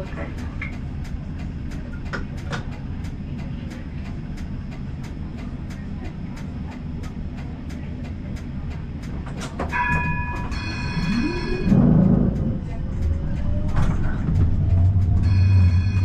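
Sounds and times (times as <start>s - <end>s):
regular clicking of tram: 0.0s - 16.0s
tram rumbling: 0.0s - 16.0s
high ringing tones: 9.7s - 12.4s, 15.2s - 16.0s.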